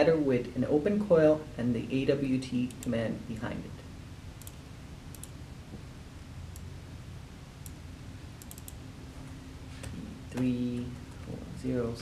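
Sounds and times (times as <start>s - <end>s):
low steady hum: 0.0s - 12.0s
computer mouse clicks: 4.4s - 5.4s, 8.4s - 8.8s.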